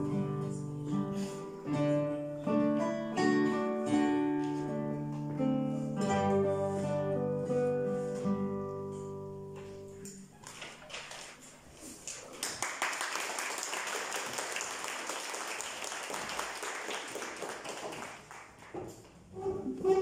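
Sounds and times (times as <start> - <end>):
audience applauding: 10.4 - 18.8.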